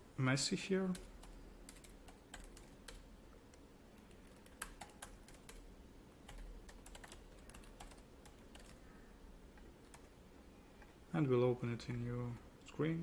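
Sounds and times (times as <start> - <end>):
faint keyboard typing: 0.8 - 8.9, 9.5 - 11.0.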